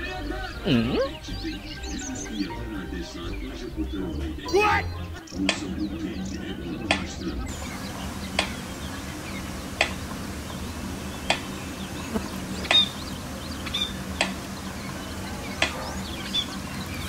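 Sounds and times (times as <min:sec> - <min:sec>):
budgerigars chirping and clicking: 0:00.1 - 0:17.0
faint low hum: 0:05.3 - 0:17.0.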